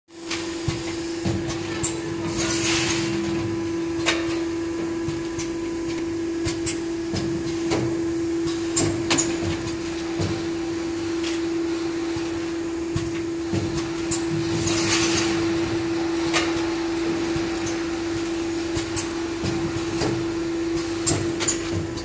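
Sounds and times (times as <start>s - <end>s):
packing machine humming: 0.1s - 22.0s
hiss of air: 2.2s - 3.2s, 14.5s - 15.6s
machine clicks and clacks: 18.7s - 22.0s.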